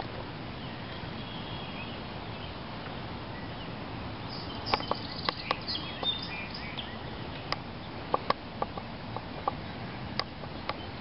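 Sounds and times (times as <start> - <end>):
outdoor background noise: 0.0 - 11.0
birds chirping: 3.3 - 11.0.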